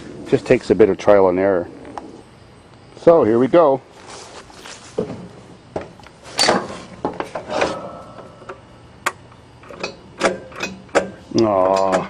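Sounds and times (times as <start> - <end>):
short rustles: 3.4 - 5.5.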